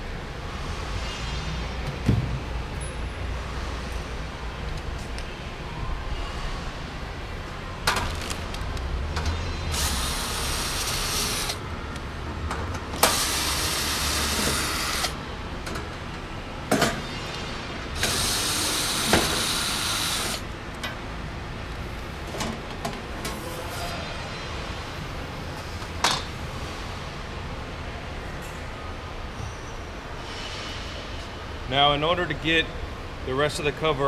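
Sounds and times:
cordless drill running: 9.7s - 11.6s, 13.0s - 15.2s, 18.0s - 20.4s.

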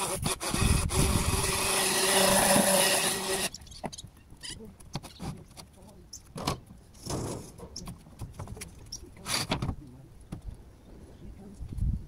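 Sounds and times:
roofing materials scraping: 0.0s - 3.9s.

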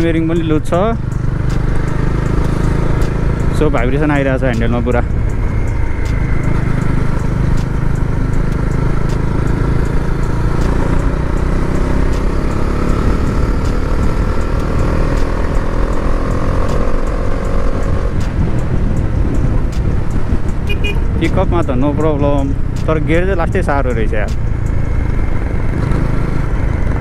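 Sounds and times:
motorcycle engine accelerating: 0.0s - 27.0s
heavy low rumble: 2.6s - 11.2s.

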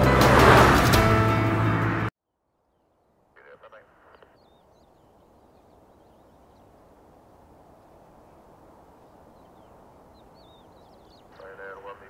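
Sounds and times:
small birds chirping: 2.6s - 12.0s
distant jet engines rumbling: 2.7s - 12.0s.

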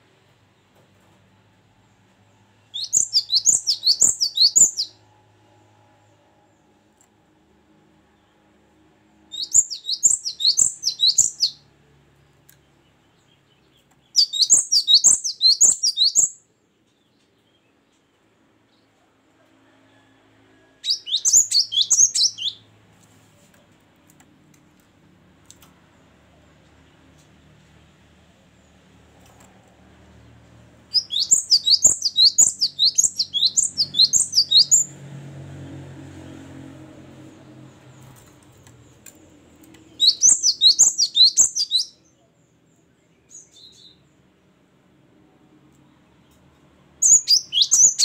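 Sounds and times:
bird singing high sharp notes: 2.7s - 5.0s, 9.3s - 11.6s, 14.2s - 16.4s, 20.9s - 22.6s, 30.9s - 34.9s, 39.8s - 42.1s, 47.0s - 48.0s.

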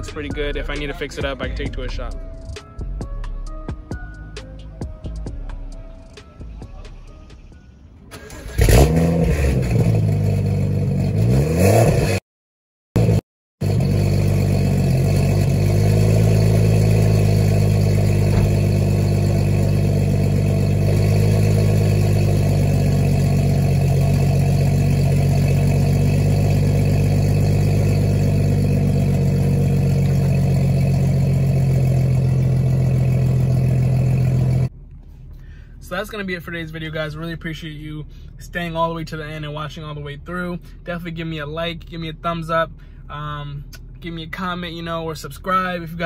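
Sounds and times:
car engine idling: 0.0s - 11.3s, 13.0s - 46.0s.

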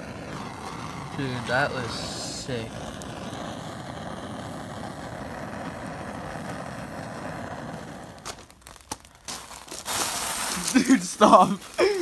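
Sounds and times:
flames burning and crackling: 0.0s - 12.0s.

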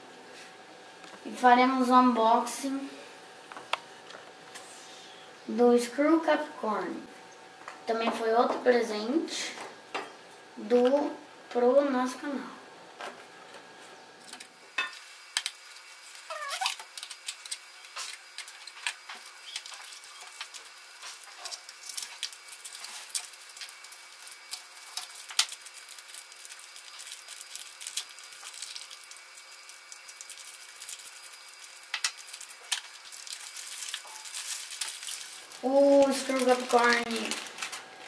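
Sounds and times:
packaging crackling and crinkling: 14.4s - 38.0s
plastic bags crumpled: 15.1s - 38.0s.

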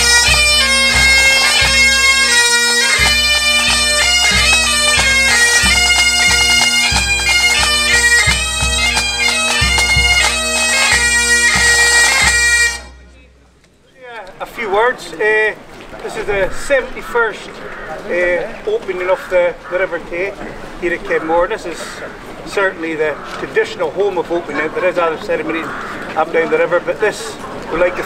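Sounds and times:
bagpipes playing tune with drone: 0.0s - 13.4s.

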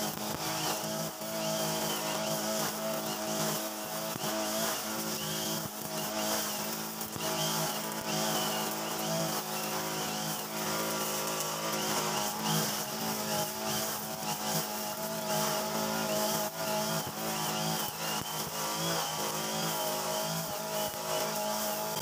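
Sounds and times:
brush cutter engine running: 0.0s - 22.0s.

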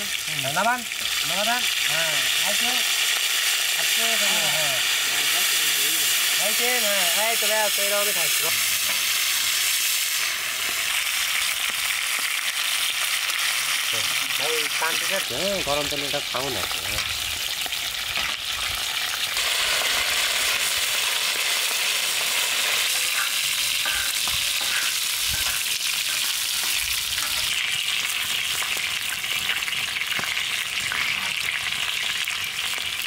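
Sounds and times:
fish sizzling in hot oil: 0.0s - 33.0s
metal spatula scraping griddle: 23.0s - 27.6s.

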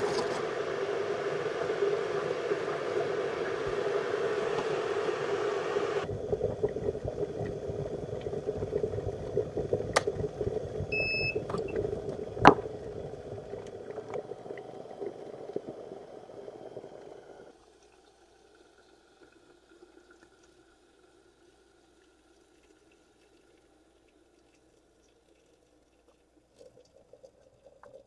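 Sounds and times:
kettle heating water: 0.0s - 28.0s
short beep: 10.9s - 11.4s.

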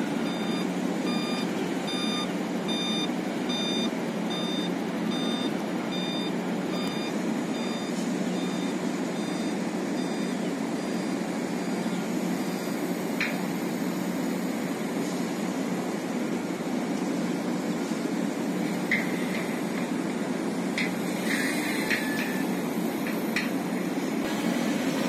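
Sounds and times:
truck reversing beeper: 0.0s - 12.8s
truck engines running: 0.0s - 25.0s.

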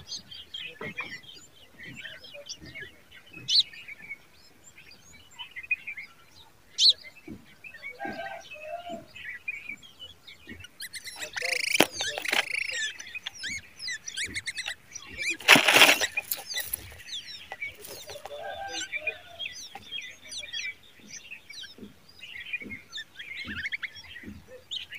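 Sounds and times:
nestlings begging chirps: 0.0s - 24.9s
bird wings fluttering: 11.2s - 13.5s, 15.2s - 18.8s.

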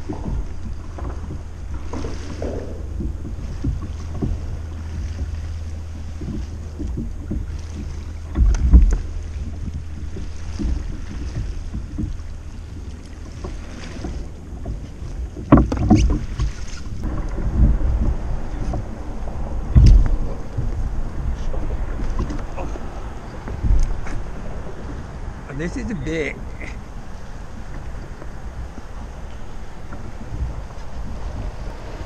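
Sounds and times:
thumps on kayak: 0.0s - 24.3s
water lapping against kayak: 0.0s - 32.0s
wind buffeting microphone: 0.0s - 32.0s.

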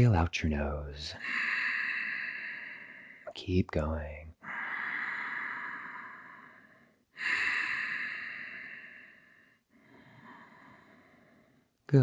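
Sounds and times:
man breathing through nose: 1.2s - 3.3s, 4.4s - 11.7s.

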